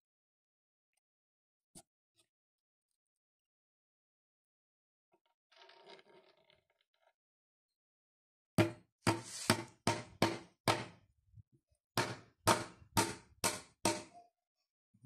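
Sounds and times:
hammer striking nail into wood: 8.6s - 11.0s, 12.0s - 14.1s.

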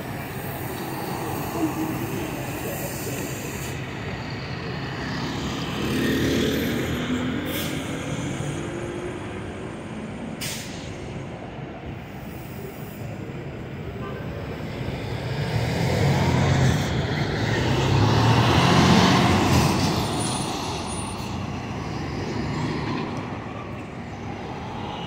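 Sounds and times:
city traffic noise: 0.0s - 25.0s
large truck driving past: 15.2s - 23.6s.

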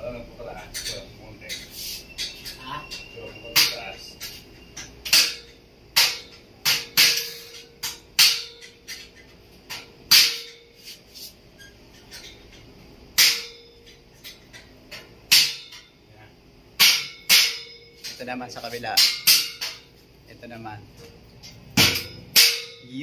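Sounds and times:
hammer striking metal: 2.2s - 10.8s, 13.2s - 16.0s, 16.8s - 18.2s, 18.9s - 19.9s, 21.8s - 23.0s.

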